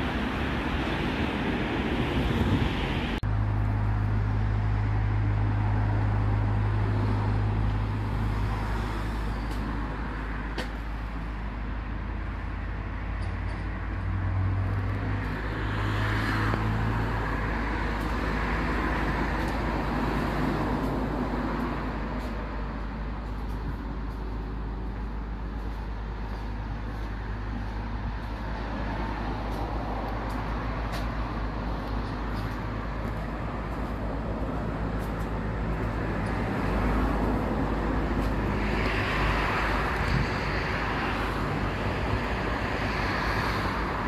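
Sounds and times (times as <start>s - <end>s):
low engine hum: 0.0s - 44.0s
traffic rumble: 0.0s - 44.0s.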